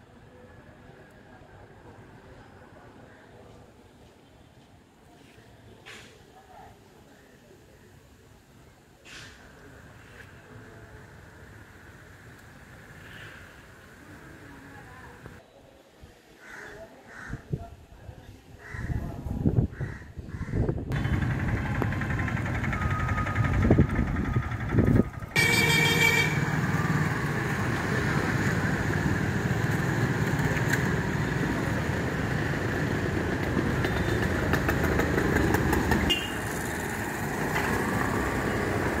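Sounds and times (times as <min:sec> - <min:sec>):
road traffic: 0:00.0 - 0:15.4, 0:19.5 - 0:39.0
motorcycle and scooter engines: 0:20.8 - 0:39.0.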